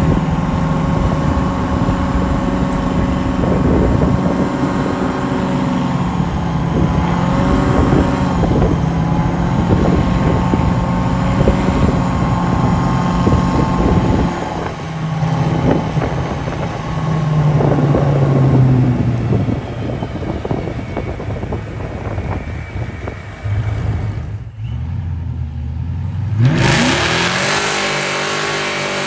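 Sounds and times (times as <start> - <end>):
wind on microphone: 0.0 - 24.5
truck engine cruising: 0.0 - 29.0.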